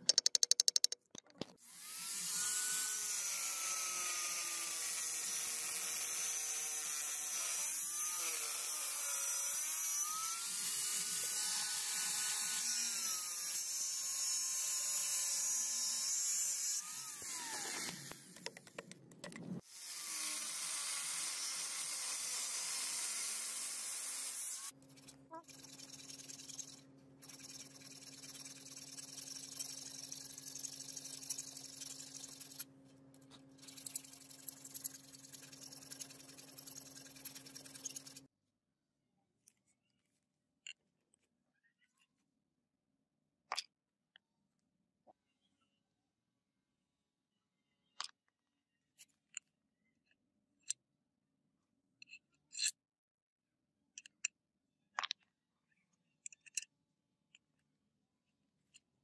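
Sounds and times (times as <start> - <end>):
metal and wood pieces tapping: 0.0 - 1.6
file rasping against brass: 24.6 - 32.7, 33.6 - 38.3.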